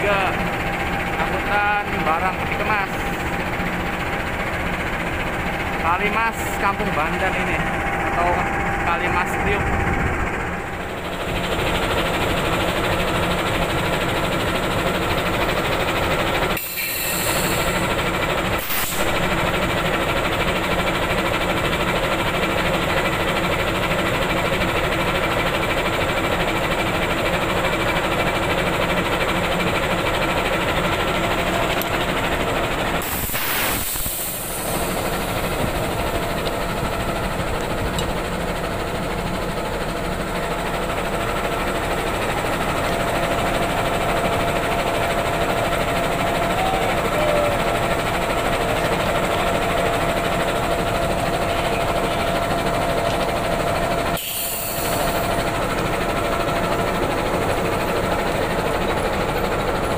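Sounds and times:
diesel locomotive idling: 0.0 - 59.9
brief hiss: 33.2 - 34.9.

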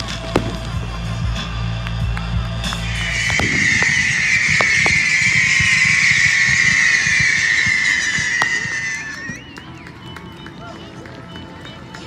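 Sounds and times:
firework pops and crackles: 0.0 - 9.5
whistling fireworks: 0.0 - 11.4.

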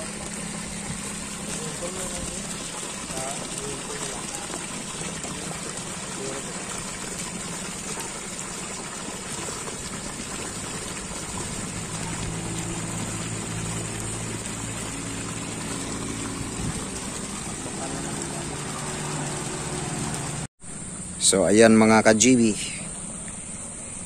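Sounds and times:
water pouring into a plastic drum: 0.0 - 20.5
low hum: 10.0 - 21.2.

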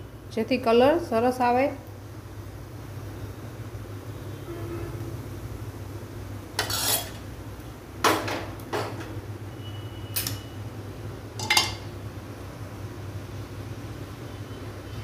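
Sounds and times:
utensils clanking on steel pot: 6.6 - 7.2, 10.1 - 10.5, 11.4 - 11.9.

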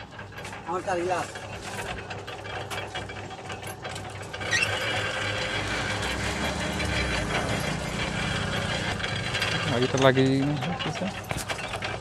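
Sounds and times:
juice machine rollers rattling: 0.0 - 12.0
short rising squeak: 4.4 - 9.0.

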